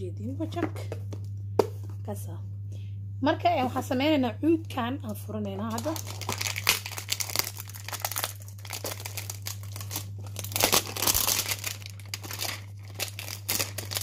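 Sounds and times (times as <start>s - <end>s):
low electrical hum: 0.0s - 14.0s
plastic shrink-wrap crinkling and tearing: 5.7s - 14.0s.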